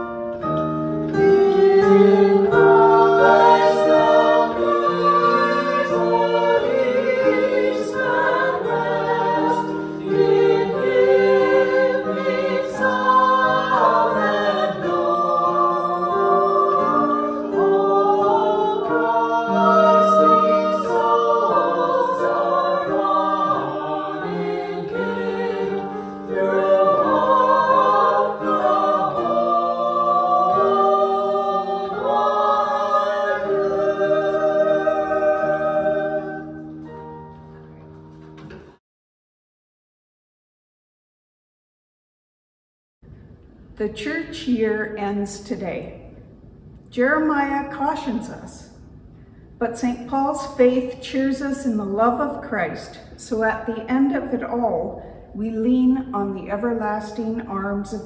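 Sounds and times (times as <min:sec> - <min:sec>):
vocal ensemble singing in harmony: 0:00.0 - 0:37.8.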